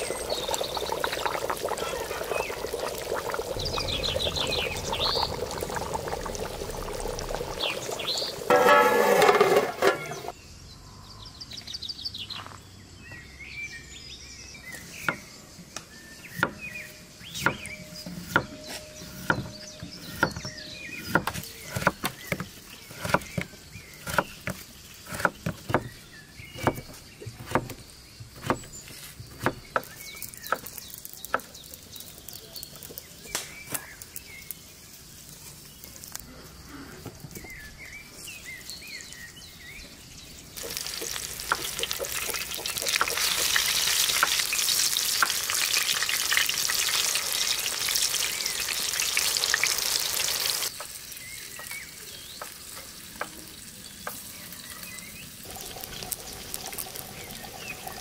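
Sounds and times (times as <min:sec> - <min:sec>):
birds chirping: 0:00.0 - 0:58.0
knife chopping on wooden board: 0:26.6 - 0:27.8.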